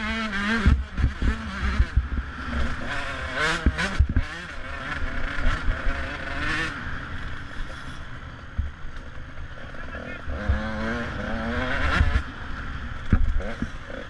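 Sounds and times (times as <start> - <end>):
motorcycle engine revving: 0.0 - 14.0
motorcycle knocking over bumps: 3.4 - 4.4.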